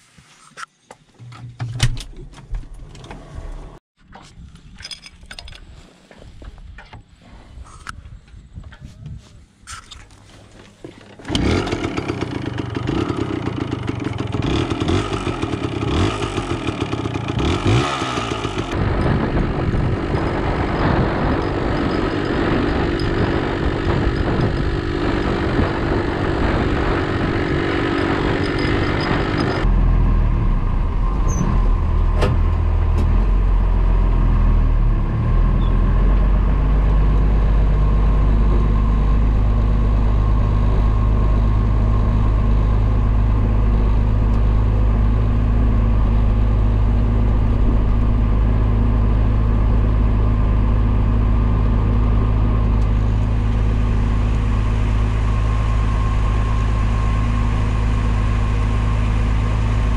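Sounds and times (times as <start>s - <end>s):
tractor engine running: 9.8s - 59.9s
motorbike engine running: 10.9s - 30.7s, 35.0s - 59.9s.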